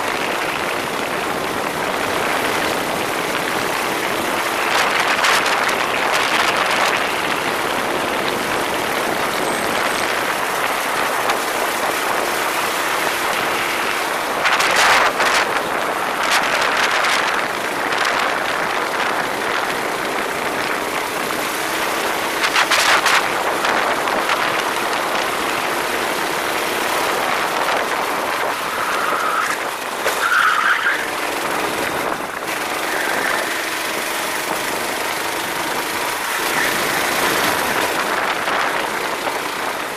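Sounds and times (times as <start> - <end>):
go-kart engine: 0.0 - 39.9
wind noise: 0.0 - 39.9
short tyre squeals: 28.6 - 31.2, 32.8 - 33.7.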